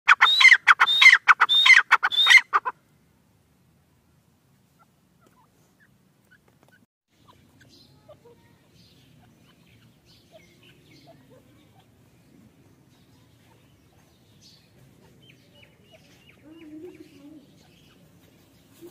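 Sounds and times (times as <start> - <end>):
bird calling shrill notes: 0.1 - 2.7
small birds chirping: 4.6 - 18.9.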